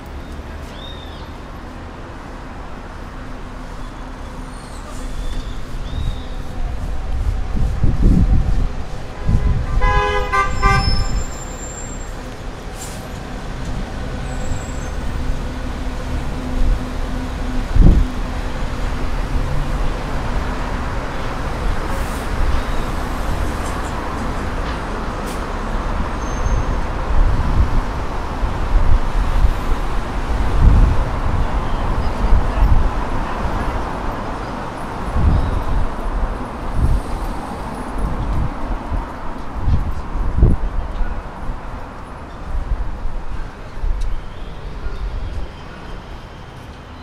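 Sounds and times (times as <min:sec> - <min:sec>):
passing cars: 0:00.0 - 0:47.0
car horn beeps: 0:09.2 - 0:11.8.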